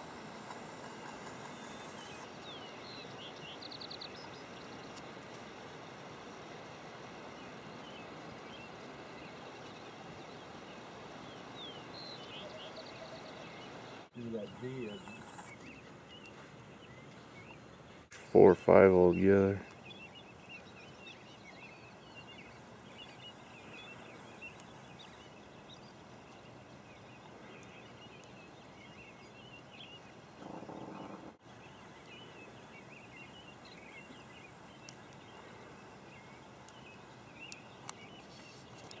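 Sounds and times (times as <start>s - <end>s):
small birds chirping: 0.0s - 39.0s
light ticks: 24.5s - 24.8s.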